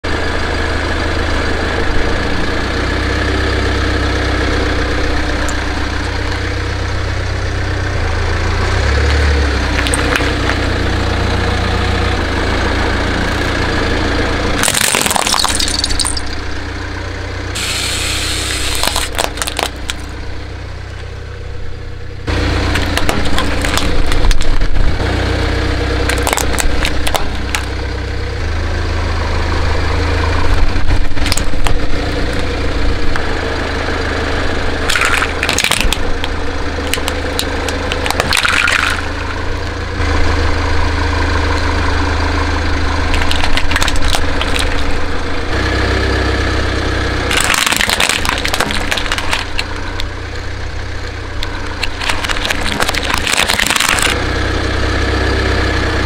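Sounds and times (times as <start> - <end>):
car engine idling: 0.0 - 56.0
objects crunching under tyres: 8.8 - 11.0, 14.5 - 16.6, 17.6 - 20.2, 22.3 - 25.1, 25.8 - 28.0, 30.4 - 33.3, 34.7 - 40.3, 41.4 - 45.5, 47.1 - 54.3.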